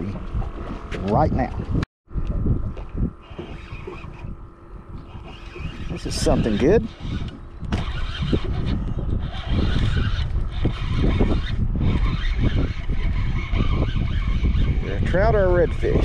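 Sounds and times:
wind rumble on microphone: 0.0s - 16.0s
fishing reel being cranked: 3.2s - 4.4s, 5.0s - 16.0s.

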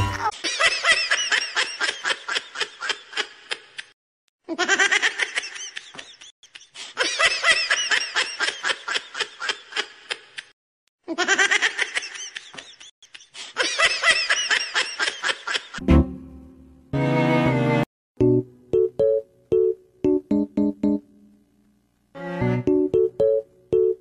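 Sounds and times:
high-pitched laughter: 4.5s - 10.5s, 11.1s - 15.8s.

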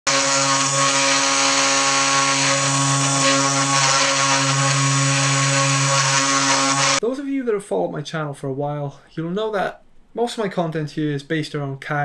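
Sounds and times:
hiss of wood cutting: 0.0s - 7.0s
spindle motor humming: 0.0s - 7.0s.

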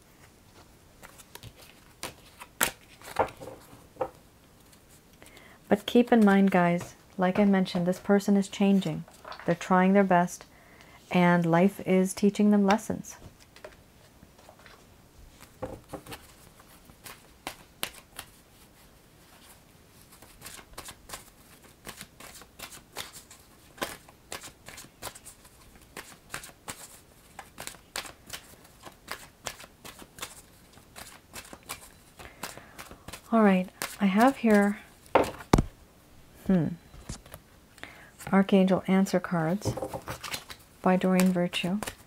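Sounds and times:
cards being shuffled: 1.0s - 3.7s, 14.4s - 18.4s, 19.3s - 35.7s, 39.6s - 42.0s.

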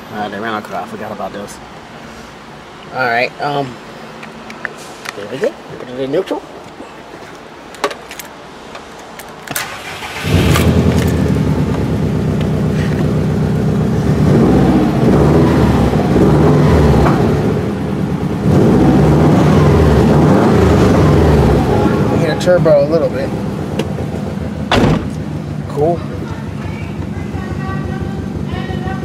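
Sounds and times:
car engine starting and revving: 9.5s - 25.9s.

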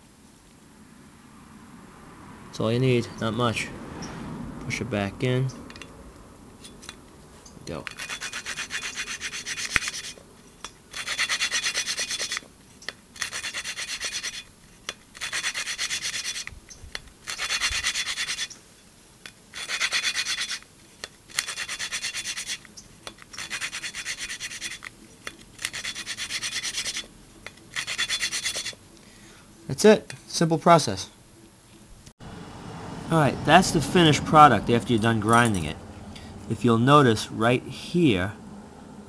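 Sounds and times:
gritty valve grinding rasp: 7.7s - 18.6s, 19.5s - 28.8s.

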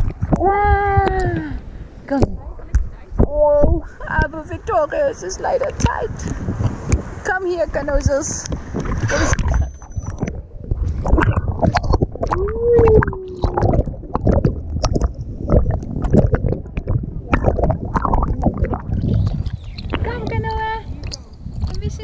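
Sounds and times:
water splashing and sloshing: 0.0s - 22.0s
sliding tone: 9.0s - 20.2s.

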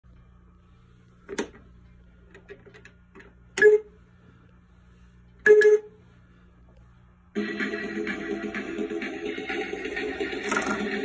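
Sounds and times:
pinball toy electronic beeps: 5.5s - 5.9s.

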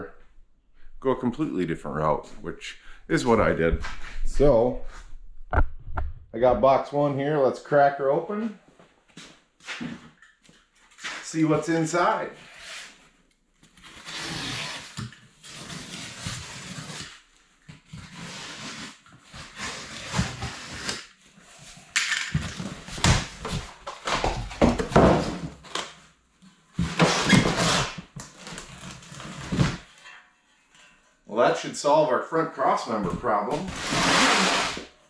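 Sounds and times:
knife slitting cardboard box: 33.6s - 34.8s.

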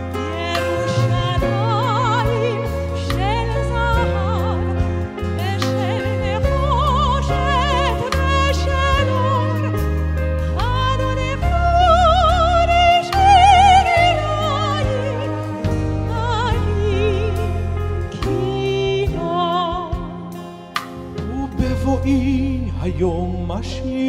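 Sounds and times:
soprano singing with vibrato: 0.0s - 20.5s
live band playing: 0.0s - 24.0s.

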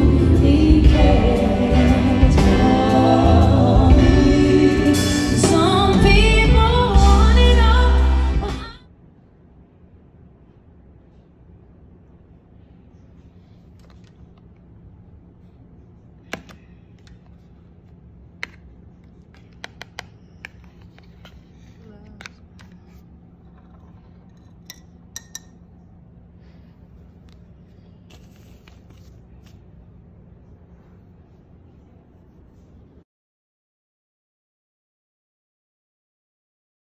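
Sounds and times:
steady low hum: 0.0s - 33.0s
items clicking on hard tabletop: 18.4s - 21.4s.

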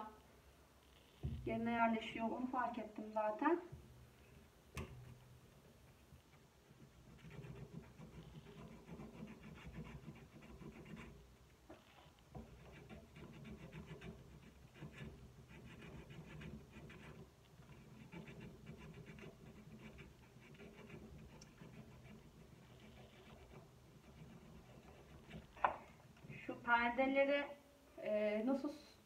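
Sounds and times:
sandpaper rasping on cork: 7.0s - 11.2s, 12.4s - 25.6s.

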